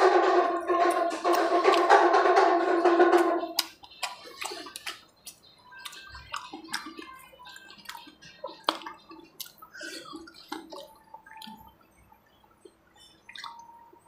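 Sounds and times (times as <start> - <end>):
lip smacks: 3.5 - 11.8, 12.6 - 13.8
tongue clicks: 13.3 - 13.8.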